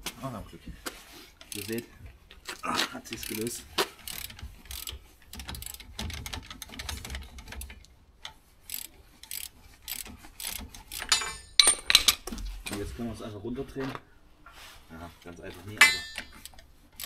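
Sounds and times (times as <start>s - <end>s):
socket ratchet clicking: 4.1s - 7.6s
sharp metallic clank: 11.0s - 12.2s, 15.8s - 16.4s.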